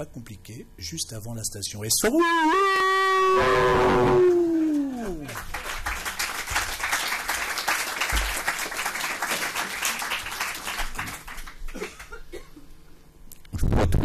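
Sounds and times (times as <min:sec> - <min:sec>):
audience applauding: 0:04.1 - 0:12.2.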